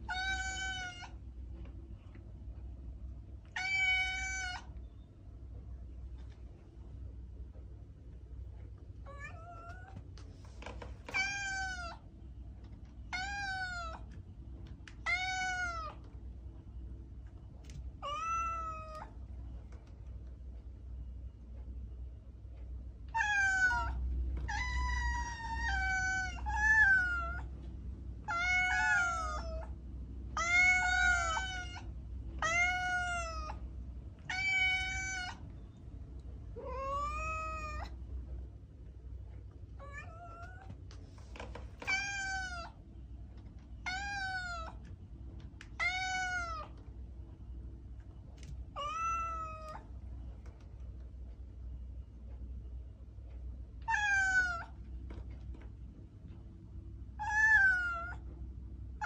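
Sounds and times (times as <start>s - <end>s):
cat meowing: 0.0s - 1.2s, 3.5s - 4.8s, 9.0s - 10.0s, 11.0s - 12.0s, 13.1s - 14.2s, 14.9s - 16.0s, 18.0s - 19.2s, 23.1s - 27.5s, 28.2s - 29.7s, 30.4s - 33.6s, 34.2s - 35.4s, 36.6s - 38.0s, 39.8s - 40.7s, 41.8s - 42.8s, 43.8s - 44.8s, 45.8s - 46.8s, 48.7s - 49.9s, 53.8s - 54.8s, 57.2s - 58.2s.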